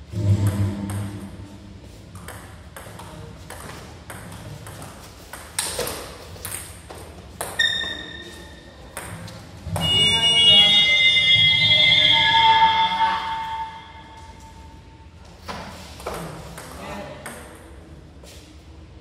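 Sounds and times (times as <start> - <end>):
table tennis ball hitting bats: 0.4 - 1.4, 2.1 - 10.1, 15.5 - 17.8
sound with held tones: 9.8 - 14.9.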